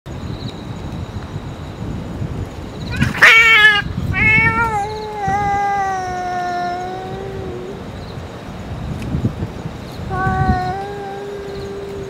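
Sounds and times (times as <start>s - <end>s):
cat screeching: 2.9s - 7.9s, 10.1s - 12.0s
cat yowling: 2.9s - 8.0s, 10.1s - 12.0s.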